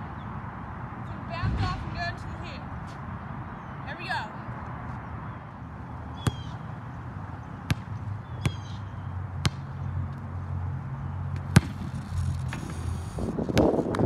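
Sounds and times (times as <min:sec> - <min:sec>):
basketball bouncing on hard court: 0:07.6 - 0:08.8, 0:11.4 - 0:11.9.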